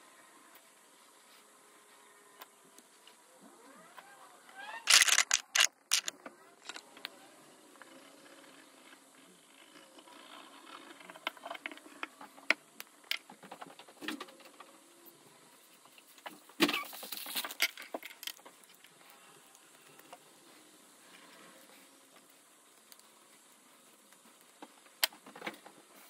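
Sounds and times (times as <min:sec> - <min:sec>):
tools clattering: 0:04.9 - 0:06.8.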